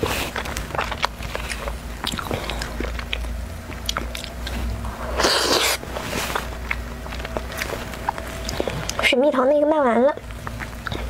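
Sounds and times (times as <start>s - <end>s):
wet mouth clicks and chewing: 0.2s - 9.1s, 10.2s - 11.0s
slurp: 4.4s - 6.5s.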